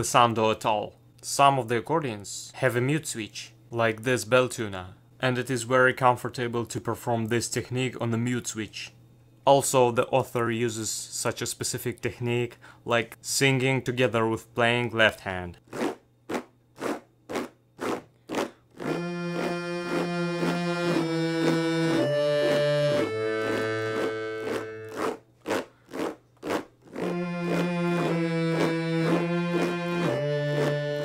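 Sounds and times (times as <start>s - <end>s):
accordion rasping strokes: 17.8s - 31.0s
accordion chords: 18.8s - 25.2s, 26.9s - 31.0s.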